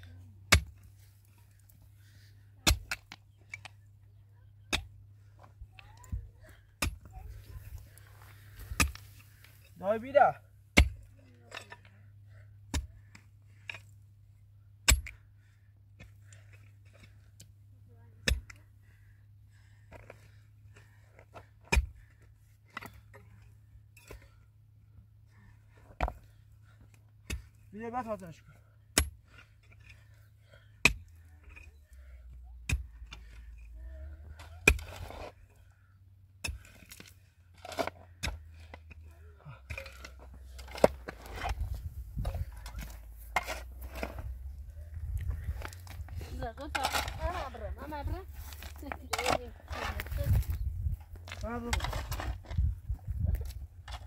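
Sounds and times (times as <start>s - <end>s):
pickaxe striking stony soil: 0.5s - 0.9s, 2.6s - 3.6s, 6.8s - 7.2s, 8.6s - 9.1s, 10.7s - 11.9s, 12.7s - 13.0s, 14.8s - 15.2s, 18.2s - 18.6s, 21.2s - 22.1s, 28.9s - 30.0s, 30.8s - 31.7s, 34.3s - 35.4s, 36.4s - 47.6s, 48.4s - 52.7s.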